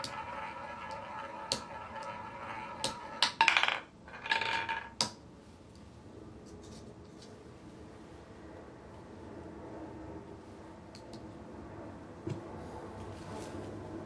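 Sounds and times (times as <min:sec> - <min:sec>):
roulette ball rattling on frets: 0:00.0 - 0:05.2
roulette ball whirring: 0:00.0 - 0:05.2.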